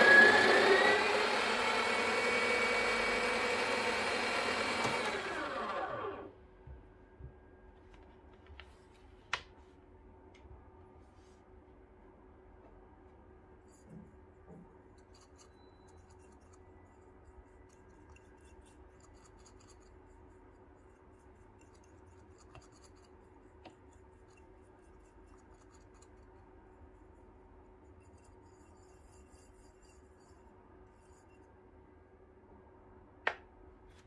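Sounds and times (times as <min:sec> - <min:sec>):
needle tool scratching coffee grounds: 0:15.0 - 0:31.4.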